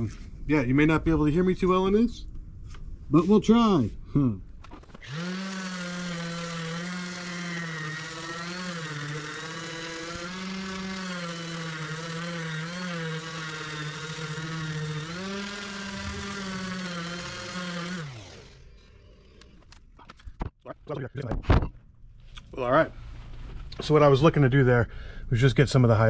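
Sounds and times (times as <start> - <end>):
handheld sander running: 5.0 - 19.8.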